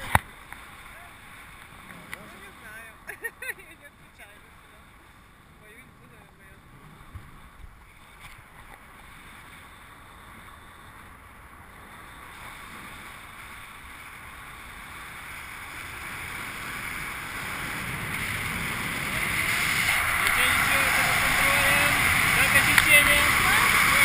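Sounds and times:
wind rushing over microphone: 14.4 - 24.0.

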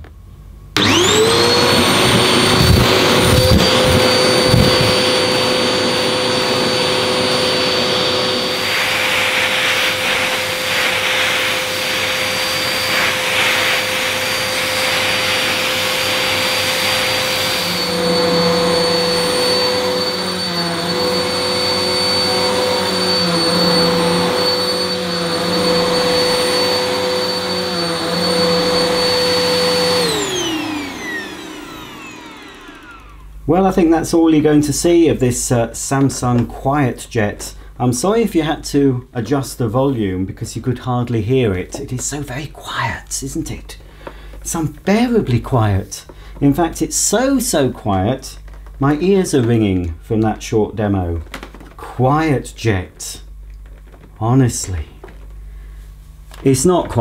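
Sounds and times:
vacuum cleaner running: 0.8 - 36.6.

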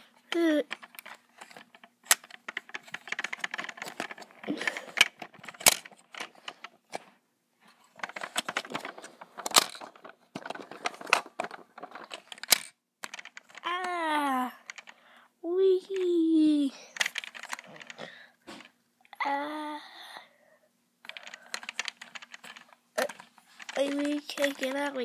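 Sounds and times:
plastic toys rattling: 0.0 - 15.1, 15.8 - 18.8, 21.0 - 25.0.

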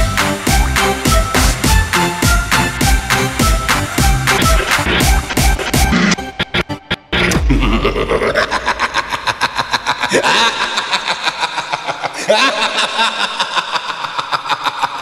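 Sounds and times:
electronic music with fast beat: 0.0 - 9.0.

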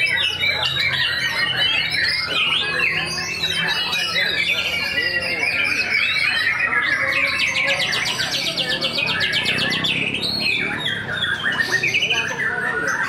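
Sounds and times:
bird whistling song: 0.0 - 13.0.

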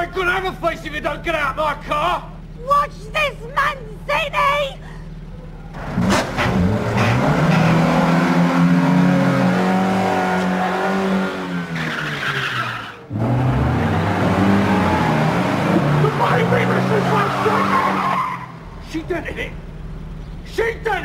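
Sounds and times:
car engine revving: 5.0 - 20.5
tyre squeal: 17.1 - 18.6.

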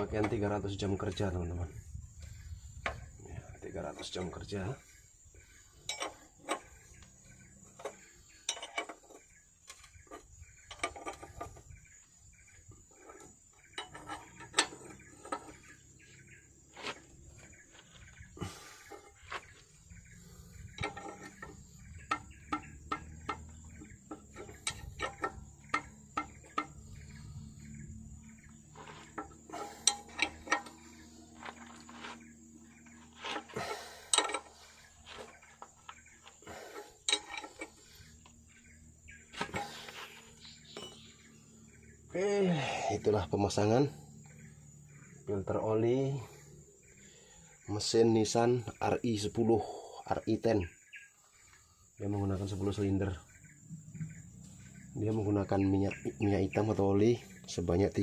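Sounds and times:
wrench clinking on metal: 5.8 - 6.8, 7.8 - 9.9, 20.7 - 26.9, 28.8 - 31.0, 33.3 - 34.6, 37.0 - 37.8.

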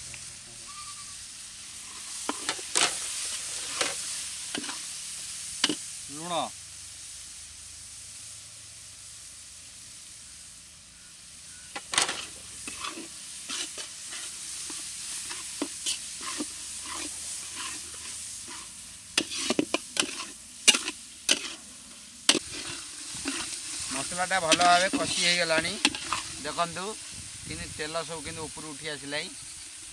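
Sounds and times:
masala sizzling in oil: 0.0 - 29.9
metal spatula scraping pan: 1.8 - 4.8, 11.7 - 21.7, 22.3 - 26.7.

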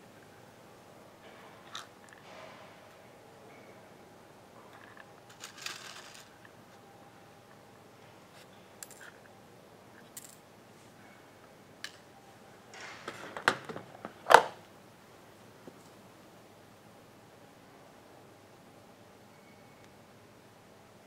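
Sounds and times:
small metal parts rattling in box: 4.8 - 6.3.

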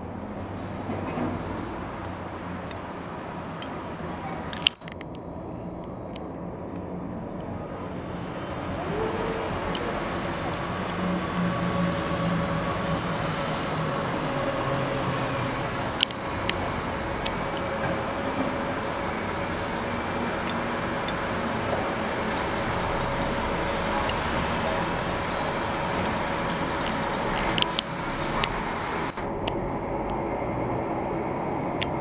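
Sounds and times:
road traffic noise: 0.0 - 32.0
sharp clicks: 4.5 - 6.9
faint high whistling: 4.7 - 6.3, 11.8 - 20.3, 22.4 - 24.2.

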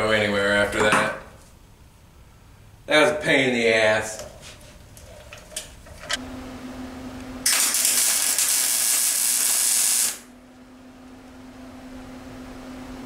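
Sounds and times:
steady hum: 0.0 - 13.0
welder arc crackling: 7.4 - 10.3.

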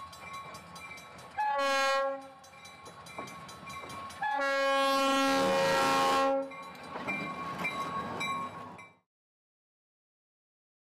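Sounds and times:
train wheels clattering on rails: 0.0 - 9.0
train horn blast: 1.4 - 2.4, 4.2 - 6.6.

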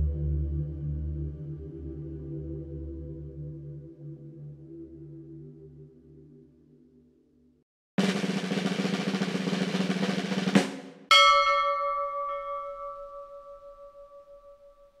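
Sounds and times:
soft ambient music: 0.0 - 7.3
snare drum roll: 8.0 - 12.5
struck bell ringing: 11.1 - 15.0.

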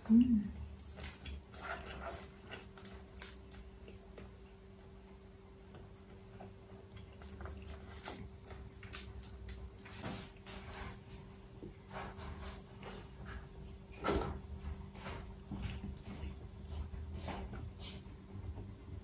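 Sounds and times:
fingers peeling shrimp shells: 0.0 - 11.4
faint steady hum: 0.0 - 19.0.

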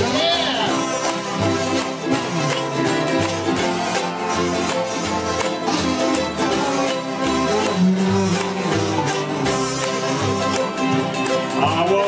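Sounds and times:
banjo: 0.0 - 12.0
low bass notes: 0.0 - 12.0
ukuleles and guitar strumming: 0.0 - 12.0.

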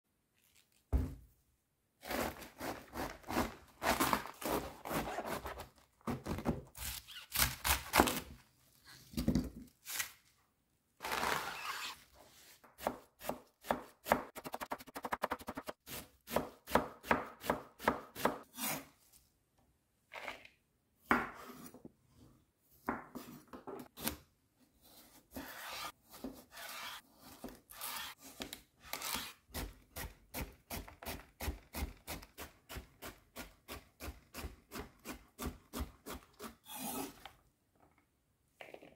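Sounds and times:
knife cutting cabbage on board: 2.0 - 5.7, 11.1 - 18.9, 24.8 - 37.2
knife cutting cucumber: 24.8 - 37.3.

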